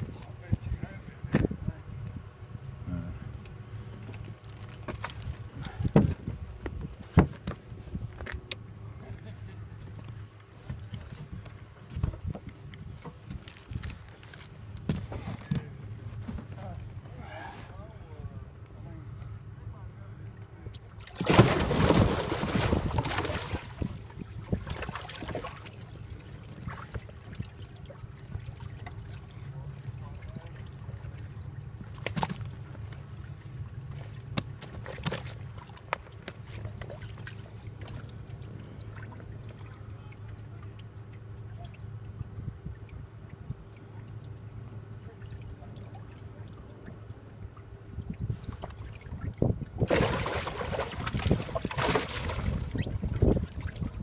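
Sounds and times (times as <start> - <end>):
steady low hum: 0.0 - 54.0
water splashing in a tank: 20.9 - 31.2, 34.2 - 54.0.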